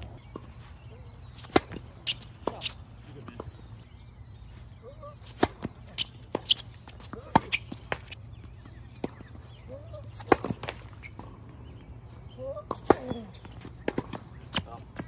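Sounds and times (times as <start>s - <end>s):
racket hitting tennis ball: 1.4s - 3.4s, 5.2s - 8.2s, 10.1s - 11.2s
tennis ball bouncing on court: 1.4s - 3.6s, 5.2s - 9.3s, 10.1s - 11.4s, 12.7s - 15.0s.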